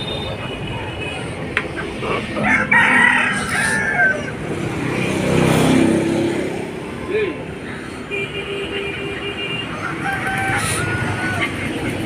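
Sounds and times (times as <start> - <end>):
road traffic: 0.0 - 12.0
chicken calling harshly: 9.8 - 11.6.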